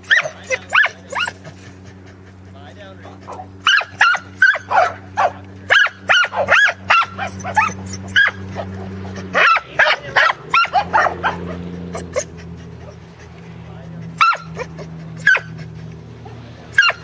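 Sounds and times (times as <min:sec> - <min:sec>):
dog barking: 0:00.0 - 0:01.5, 0:03.3 - 0:13.0, 0:14.2 - 0:15.6, 0:16.3 - 0:17.0.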